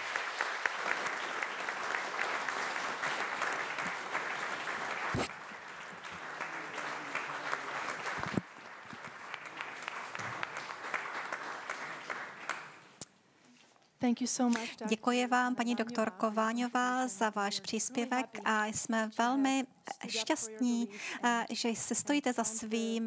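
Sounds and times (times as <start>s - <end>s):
audience applause: 0.0s - 13.0s.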